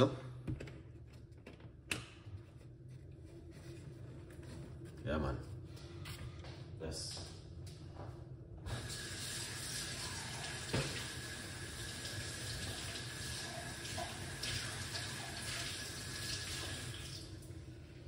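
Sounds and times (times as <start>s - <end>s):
water running from tap: 8.7s - 17.5s.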